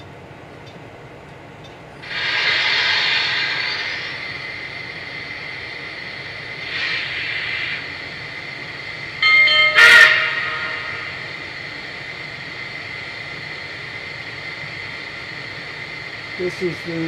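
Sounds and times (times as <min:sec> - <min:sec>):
model locomotive steam hiss: 0:02.0 - 0:17.0.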